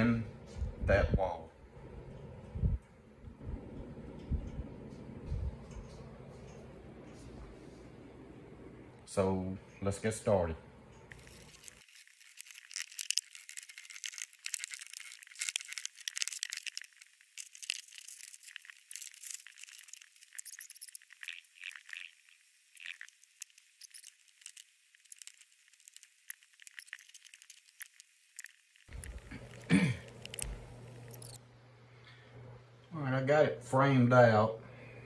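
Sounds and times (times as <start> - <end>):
drywall crackling and rattling: 11.1 - 30.6.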